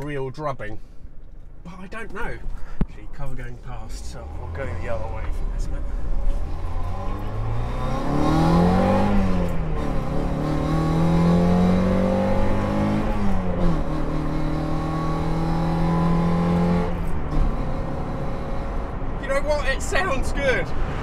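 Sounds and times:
car engine accelerating: 3.1s - 19.6s.

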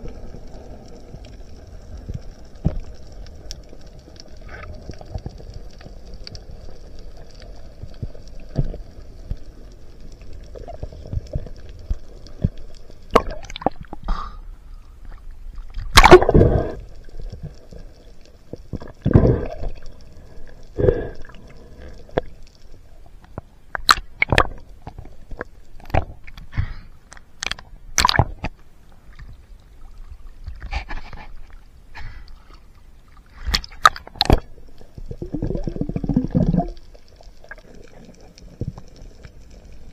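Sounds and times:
low underwater wash: 0.0s - 39.9s
gurgling bubbles: 15.8s - 17.7s, 18.6s - 22.4s, 33.3s - 39.2s.

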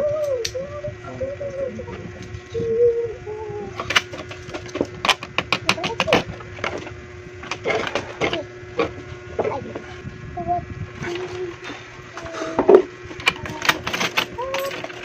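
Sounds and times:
coins clinking: 13.2s - 15.0s.

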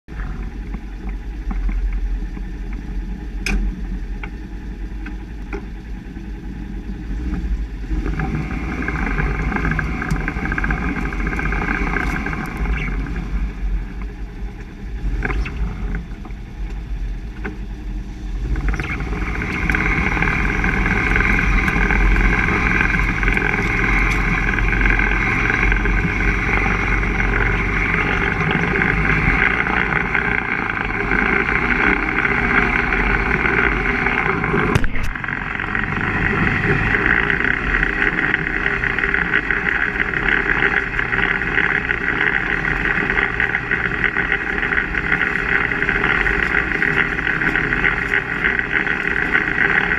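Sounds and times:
engine running low: 0.0s - 49.9s
high differential whine: 0.0s - 49.9s.

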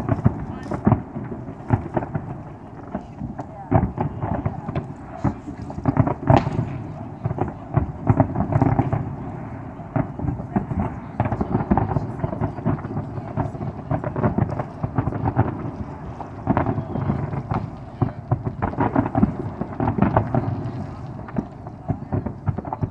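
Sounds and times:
fireworks booming and crackling: 0.0s - 22.9s.

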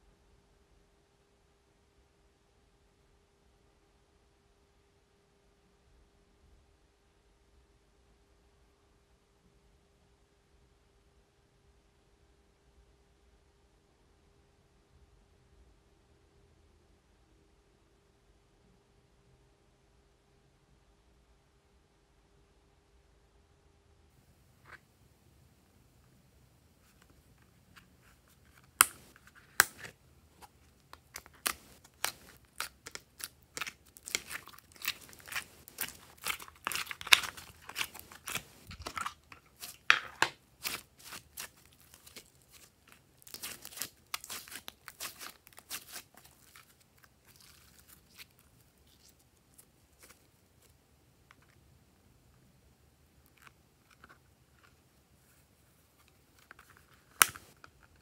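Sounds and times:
slime crackling and popping: 28.7s - 50.2s.

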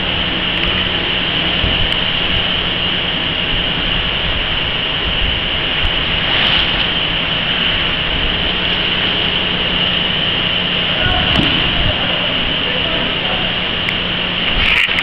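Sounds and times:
machine high whine and hum: 0.0s - 15.0s.

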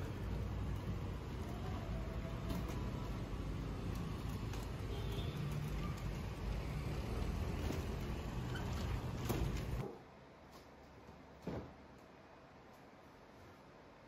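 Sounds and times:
street traffic rumble: 0.0s - 9.8s.

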